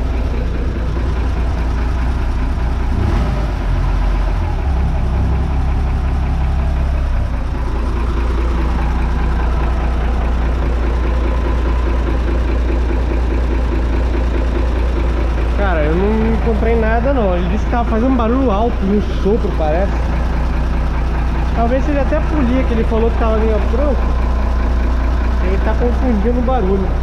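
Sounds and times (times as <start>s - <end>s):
boat engine idling: 0.0s - 27.0s.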